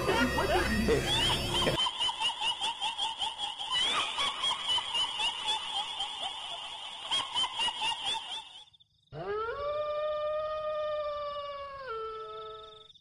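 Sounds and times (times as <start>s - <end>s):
high warbling chatter: 0.0s - 1.8s
dog-like howl: 9.2s - 12.7s.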